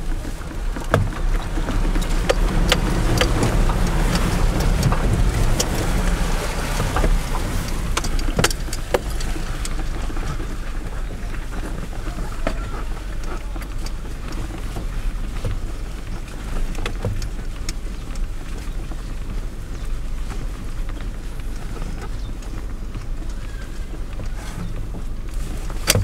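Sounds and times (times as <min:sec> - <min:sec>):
car cabin rumble: 0:00.0 - 0:26.0
vehicle knocks and rattles: 0:00.0 - 0:26.0
water sloshing under wheels: 0:00.0 - 0:26.0.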